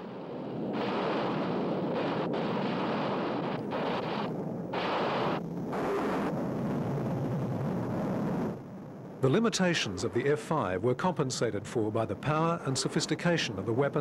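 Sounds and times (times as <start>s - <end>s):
jet fighters flying: 0.0s - 14.0s.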